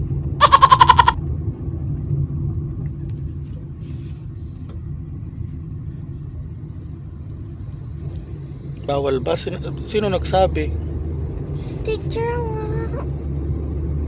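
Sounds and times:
car engine and road rumble: 0:00.0 - 0:14.0
rapid pulsed beeping: 0:00.4 - 0:01.2.

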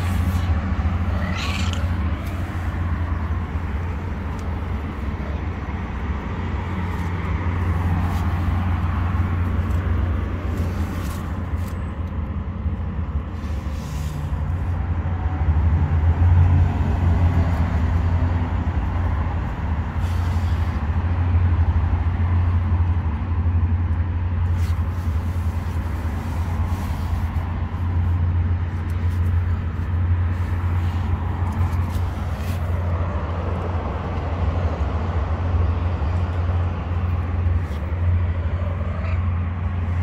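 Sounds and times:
low motor rumble: 0:00.0 - 0:13.4.

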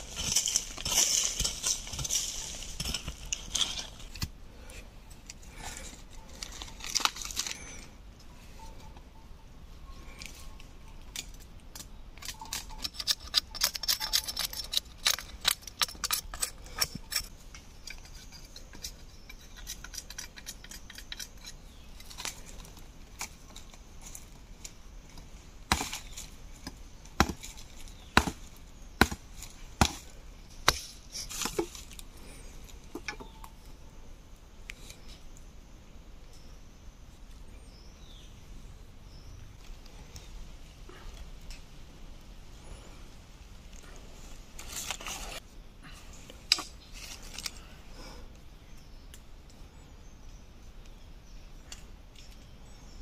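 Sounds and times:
machete chopping wood: 0:25.7 - 0:26.0, 0:27.2 - 0:27.5, 0:28.2 - 0:28.4, 0:29.0 - 0:29.2, 0:29.8 - 0:30.0.

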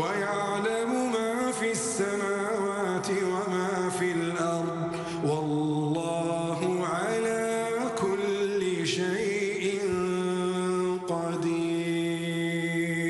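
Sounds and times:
man chanting melodic recitation: 0:00.0 - 0:13.0.

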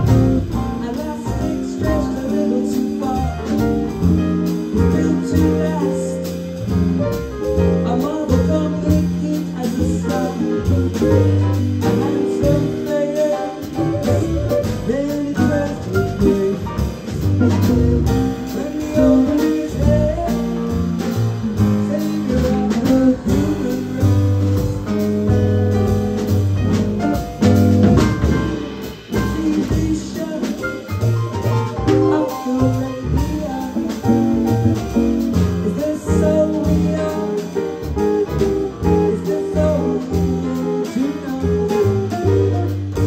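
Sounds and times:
jazz band playing: 0:00.0 - 0:43.0
woman singing: 0:00.1 - 0:03.6, 0:04.8 - 0:06.3, 0:07.9 - 0:11.2, 0:11.9 - 0:16.6, 0:18.5 - 0:20.7, 0:21.8 - 0:24.8, 0:29.2 - 0:30.9, 0:31.9 - 0:34.5, 0:35.6 - 0:37.6, 0:38.6 - 0:41.9.

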